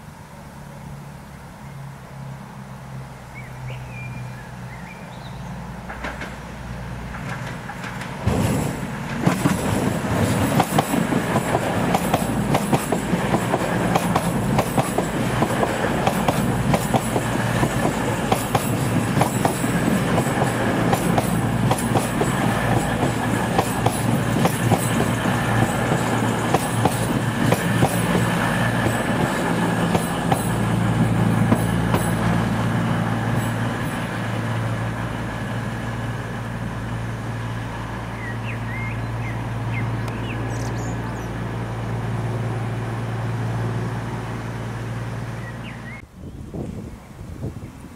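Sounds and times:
low engine hum: 0.0s - 47.9s
train wheels clattering: 5.8s - 35.0s.

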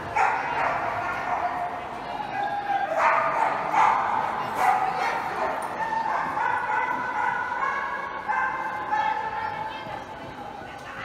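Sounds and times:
dog barking and yipping: 0.1s - 1.7s, 2.9s - 9.2s.

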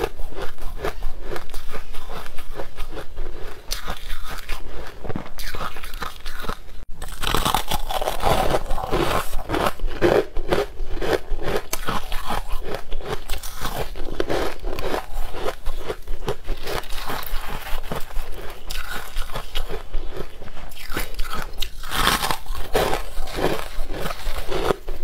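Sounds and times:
ice crunching: 7.0s - 25.0s.

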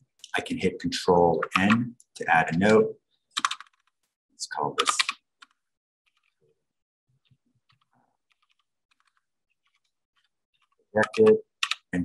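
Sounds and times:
faint keyboard typing: 1.3s - 4.1s, 4.8s - 6.6s, 7.2s - 12.0s.

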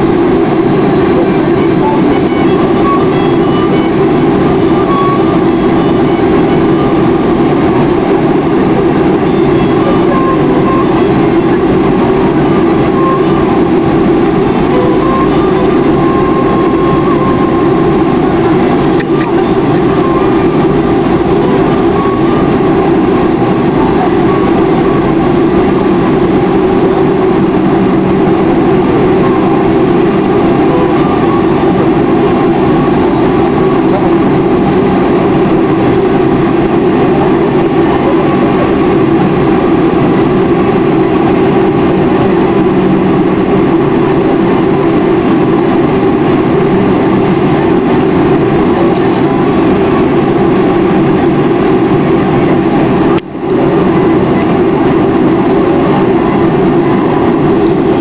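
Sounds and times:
airliner cabin jet engine hum: 0.0s - 58.0s.

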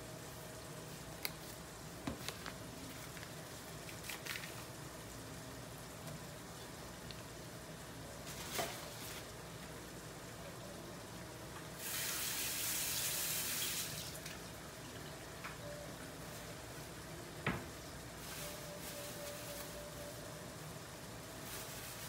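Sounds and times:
kitchen tap running: 11.8s - 15.0s.

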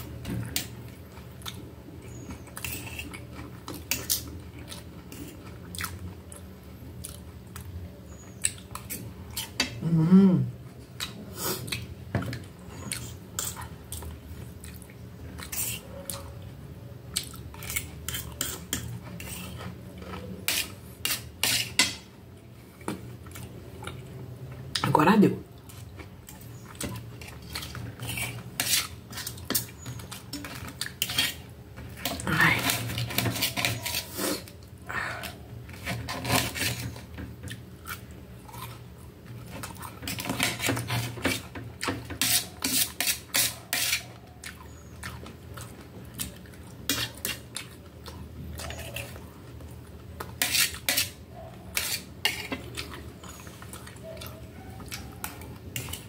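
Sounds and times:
fork and knife scraping metal plate: 20.4s - 22.0s, 28.0s - 29.7s, 30.5s - 31.4s, 32.0s - 34.5s, 35.7s - 37.0s, 40.1s - 44.1s, 46.9s - 47.4s, 50.4s - 52.8s, 55.8s - 56.0s.

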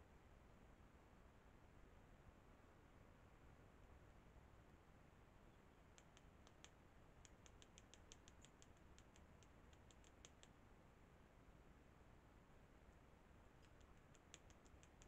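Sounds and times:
background hiss: 0.0s - 15.0s
quick high-pitched ticks: 6.0s - 10.6s, 13.6s - 15.0s.

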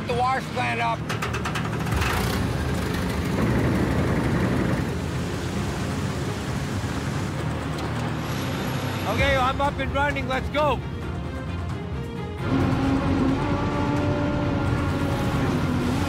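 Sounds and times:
engine drone: 0.0s - 10.3s, 11.3s - 16.0s
water rushing and pouring: 4.5s - 9.0s.

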